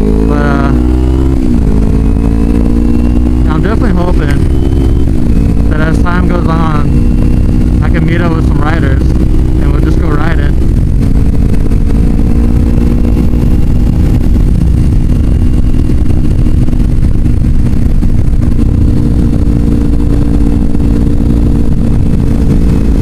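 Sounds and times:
motorcycle engine cruising: 0:00.0 - 0:23.0
wind rumble on microphone: 0:00.0 - 0:23.0.

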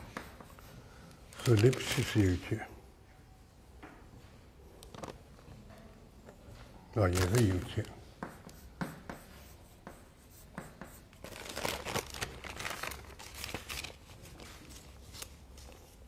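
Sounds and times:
chalk writing on chalkboard: 0:00.0 - 0:00.8, 0:08.1 - 0:11.2.

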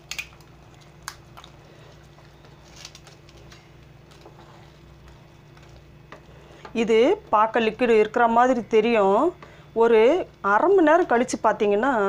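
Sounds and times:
crisp wafer cracking: 0:00.0 - 0:04.3.

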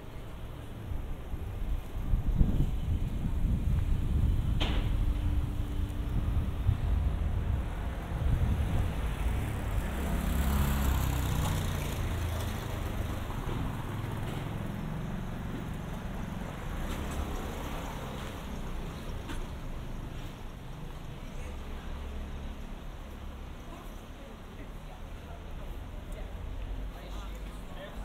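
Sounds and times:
traffic hum: 0:00.0 - 0:28.0
vehicle passing by: 0:06.2 - 0:18.6.

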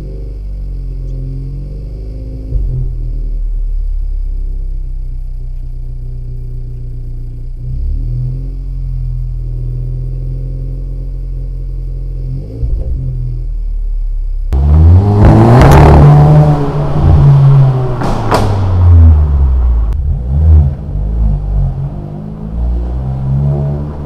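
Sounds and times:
exhaust cracks: 0:00.0 - 0:09.8, 0:12.4 - 0:24.0
car engine idling: 0:00.0 - 0:24.0
car engine revving: 0:00.0 - 0:24.0.

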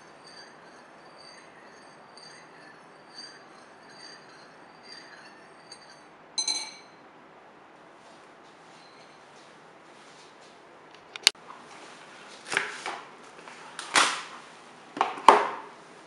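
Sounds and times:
spoon clinking on bowl: 0:00.0 - 0:07.0.

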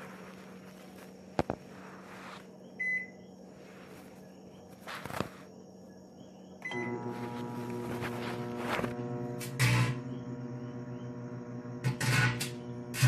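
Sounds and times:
microwave beep: 0:02.8 - 0:03.2, 0:06.6 - 0:07.6
microwave humming: 0:05.6 - 0:13.0.

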